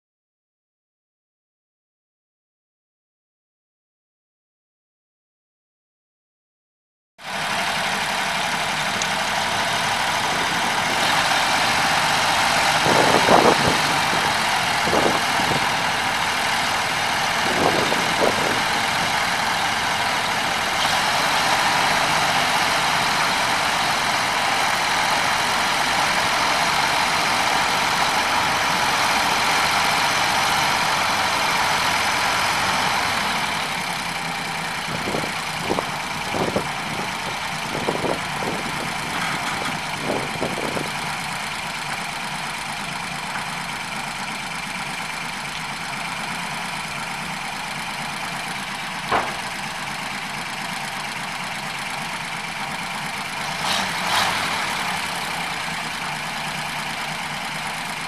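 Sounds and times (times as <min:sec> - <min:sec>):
truck engine idling: 0:07.2 - 0:58.0
short knocks: 0:49.1 - 0:49.6.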